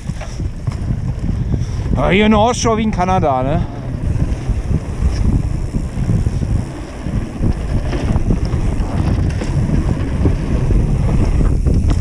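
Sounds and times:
bike clicks and rattles: 0:00.0 - 0:12.0
wind buffeting microphone: 0:00.0 - 0:12.0
tyre rumble on wooden planks: 0:03.9 - 0:12.0.

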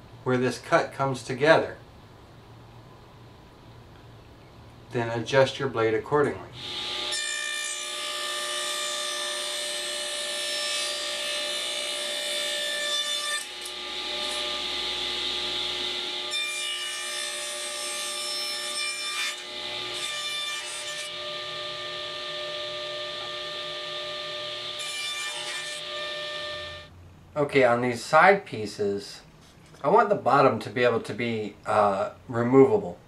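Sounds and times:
table saw cutting wood: 0:06.6 - 0:26.9.

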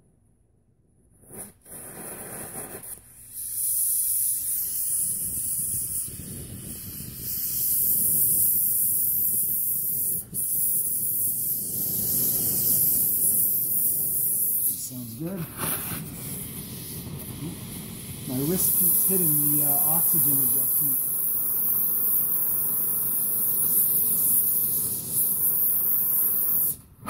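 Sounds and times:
torch flame hissing: 0:01.2 - 0:27.0
torch lighting pop: 0:07.2 - 0:21.4.

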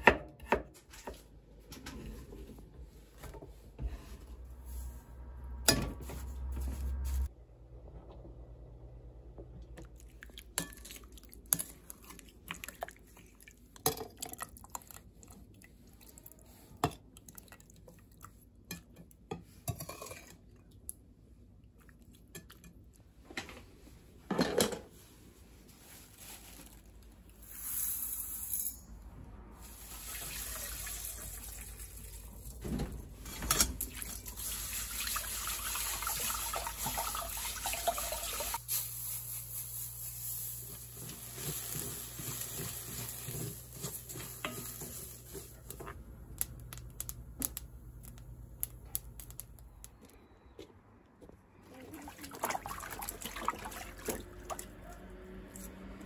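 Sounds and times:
water running at a sink: 0:29.8 - 0:32.3, 0:33.8 - 0:38.6, 0:51.8 - 0:54.5.

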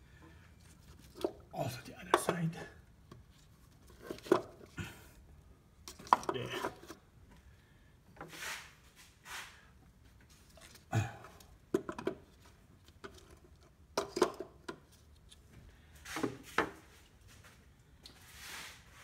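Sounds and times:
handling clicks and knocks: 0:02.1 - 0:04.8, 0:11.7 - 0:15.4.

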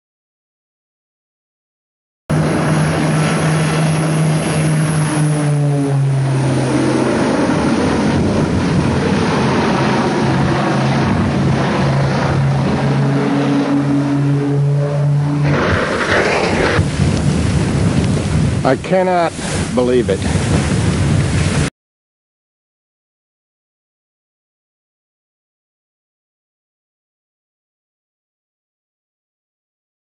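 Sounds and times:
propeller plane engines droning: 0:02.3 - 0:20.3
rushing noise of plane crashing: 0:02.3 - 0:21.7.

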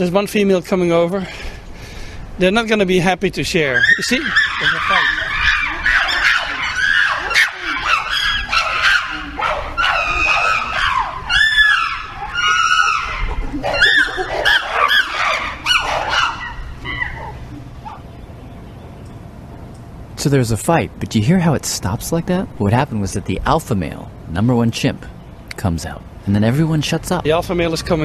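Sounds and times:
chimpanzees screaming: 0:03.6 - 0:18.1.

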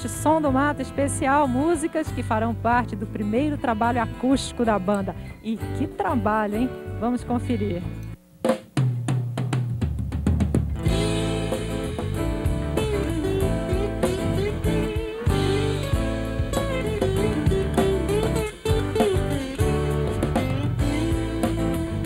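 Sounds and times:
acoustic guitars: 0:00.0 - 0:08.1, 0:10.8 - 0:22.0
drum kit hits: 0:08.5 - 0:22.0
bass line: 0:10.3 - 0:22.0
live band playing: 0:10.6 - 0:22.0.

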